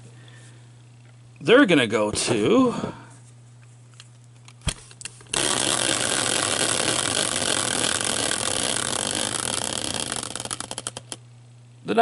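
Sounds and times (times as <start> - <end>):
spinning wheel rattling whir: 5.3 - 11.2.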